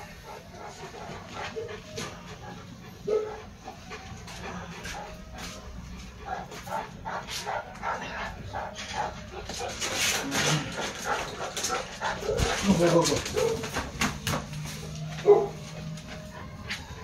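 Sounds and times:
dogs barking and whining: 0.0 - 17.0.

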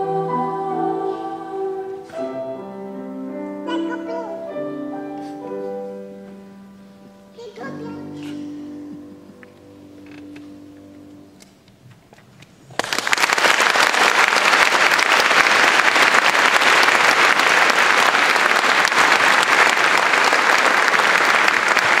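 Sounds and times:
audience applause: 12.7 - 22.0.

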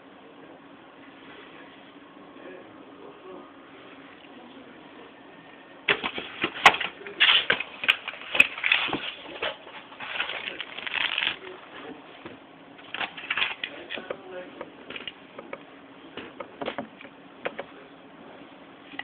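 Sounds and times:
box packaging crinkling and clicking: 5.9 - 11.5, 12.8 - 14.1.

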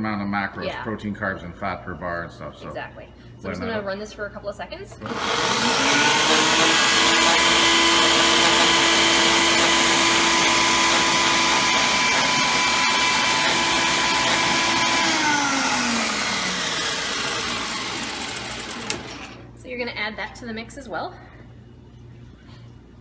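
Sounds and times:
blender blades spinning down: 5.0 - 19.4
blender motor running: 5.0 - 19.4.

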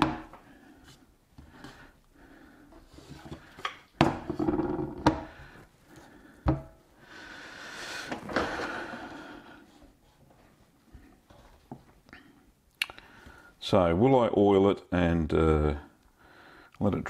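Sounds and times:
wooden board knocking: 4.0 - 5.3.

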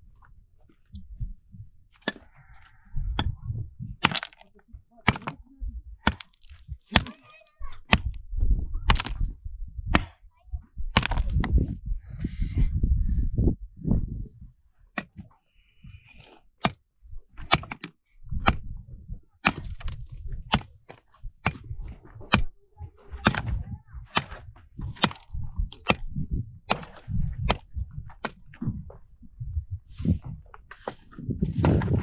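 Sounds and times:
hard objects knocking together: 11.0 - 11.6.

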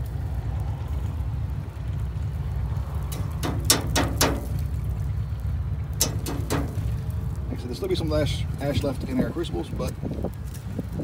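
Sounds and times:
steady low rumble: 0.0 - 11.0
metal tongs knocking on grill grate: 3.1 - 4.7, 6.0 - 7.0.

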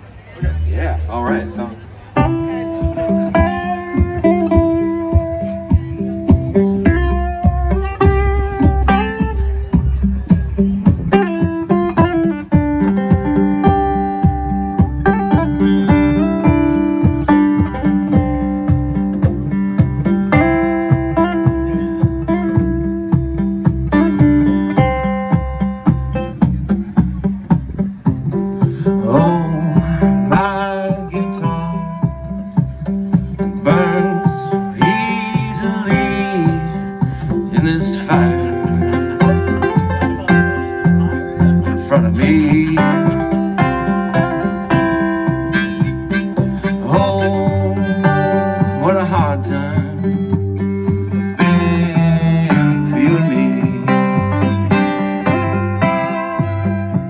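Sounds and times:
electric bass line: 0.0 - 57.0
strummed acoustic guitar: 0.0 - 57.0
congas: 2.1 - 57.0
person singing: 28.6 - 57.0
harmonica: 42.8 - 57.0.

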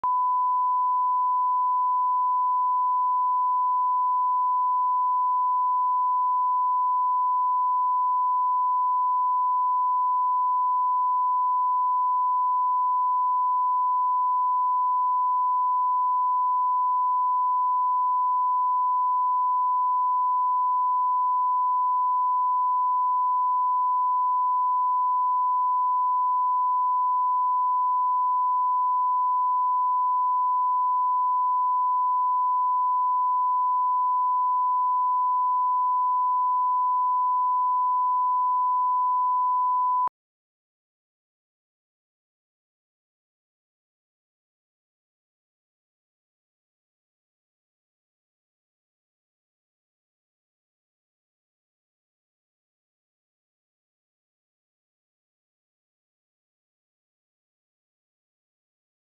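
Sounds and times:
steady sine-wave test tone: 0.0 - 40.1.

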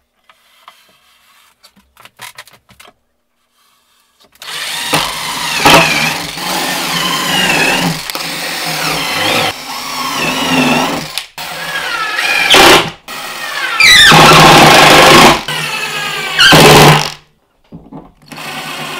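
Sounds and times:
cordless drill driving screws: 4.4 - 17.2, 18.2 - 18.9.

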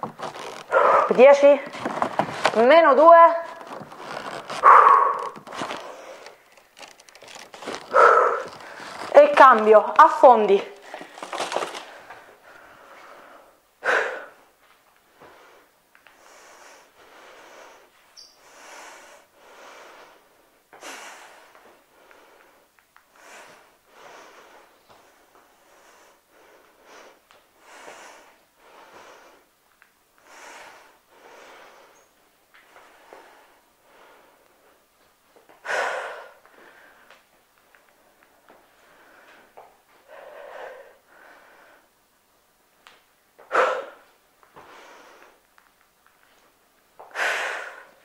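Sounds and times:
woman breathing hard: 3.6 - 9.1, 10.8 - 14.5, 15.1 - 29.6, 30.2 - 32.1, 35.6 - 37.2, 38.7 - 42.0, 43.4 - 45.4, 47.0 - 48.0.

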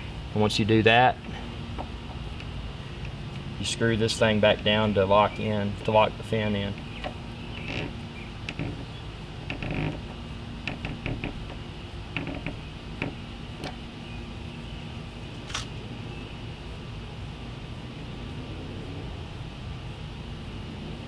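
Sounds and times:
screw clicks and creaks: 7.0 - 8.9, 9.5 - 11.6, 12.2 - 13.8.

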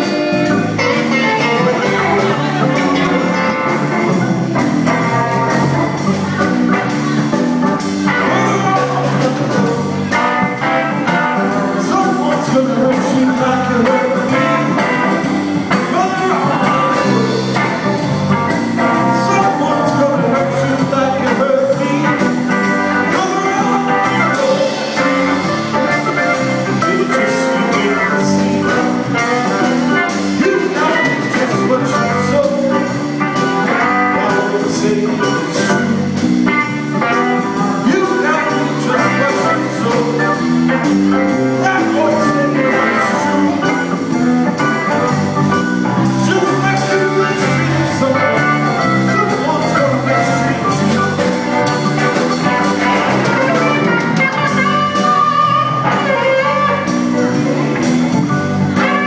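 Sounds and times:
drum kit: 0.0 - 59.0
electric guitars: 0.0 - 59.0
electric keyboard: 0.0 - 59.0
man singing: 0.0 - 59.0.

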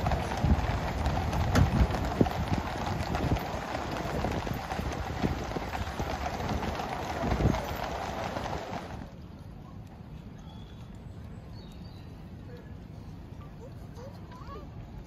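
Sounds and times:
carriage wheels rumbling: 0.0 - 10.1
hooves clip-clopping on pavement: 0.0 - 15.0.

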